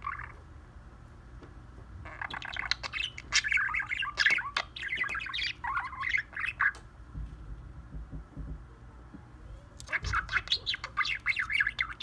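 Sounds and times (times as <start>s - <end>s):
budgerigar warbling: 0.0s - 0.4s, 2.0s - 6.8s, 9.8s - 12.0s.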